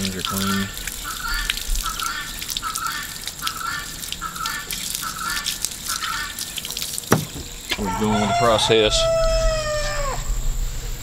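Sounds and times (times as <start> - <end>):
tap water splashing onto grass: 0.0 - 7.8.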